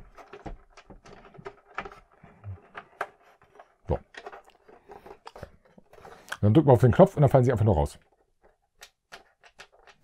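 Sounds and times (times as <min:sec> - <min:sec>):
plastic toy clicks and rattles: 0:08.0 - 0:10.0.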